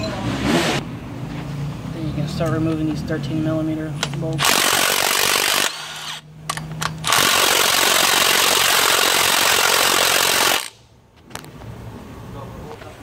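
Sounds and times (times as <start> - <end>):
impact tool whirring: 4.4 - 10.8.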